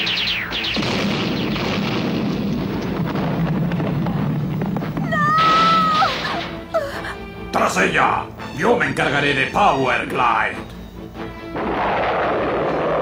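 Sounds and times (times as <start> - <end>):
cartoon laser fire: 0.0 - 2.1
cartoon explosion: 0.0 - 6.6, 11.5 - 13.0
woman screaming no: 5.0 - 7.2.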